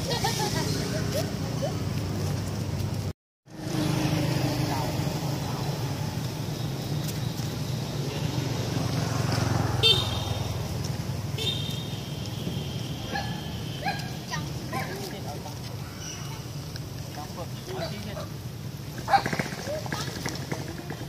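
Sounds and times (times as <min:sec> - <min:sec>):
road traffic rumble: 0:00.0 - 0:21.0
car horn toot: 0:09.8 - 0:10.6, 0:11.4 - 0:14.0.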